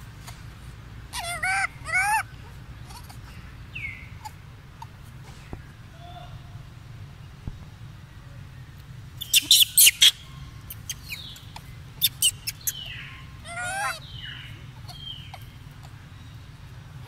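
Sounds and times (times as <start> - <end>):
wavering animal squeal: 1.1 - 2.2, 13.4 - 14.0.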